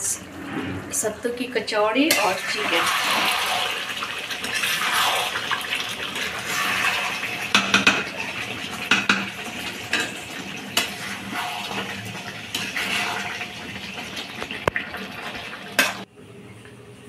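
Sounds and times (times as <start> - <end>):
food sizzling: 2.1 - 16.1
metal spatula scraping pan: 6.2 - 13.4.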